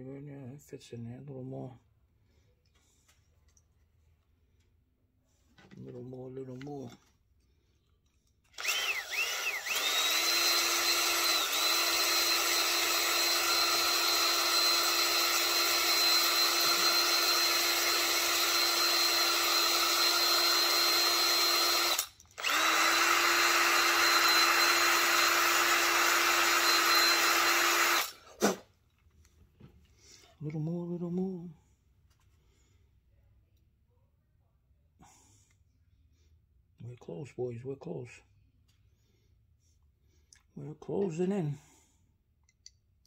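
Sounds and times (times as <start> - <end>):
battery drill boring into plastic: 8.5 - 28.4.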